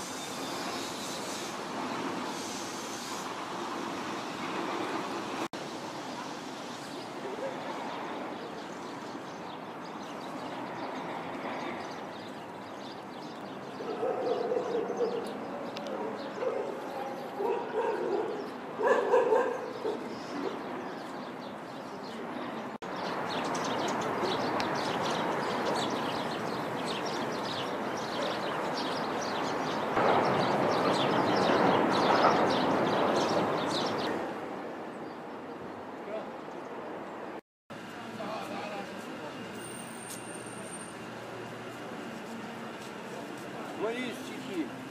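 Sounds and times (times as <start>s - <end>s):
steady outdoor noise: 0.0s - 44.9s
dogs barking and yelping: 13.8s - 20.6s.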